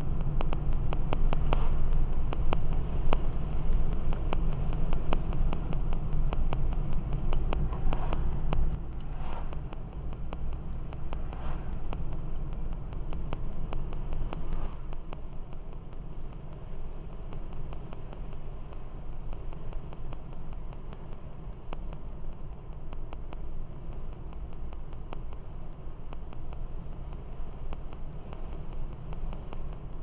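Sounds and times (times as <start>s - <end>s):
engine and tyres rumbling: 0.0s - 30.0s
faint rapid ticking: 0.0s - 30.0s.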